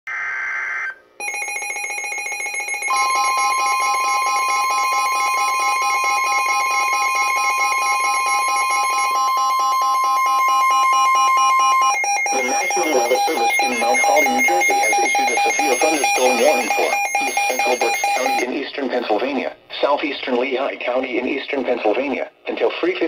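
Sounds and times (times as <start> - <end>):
fast alarm beeping: 1.2 - 18.5
steady warning alarm tone: 1.2 - 18.5
digital alert header burst: 2.7 - 18.5.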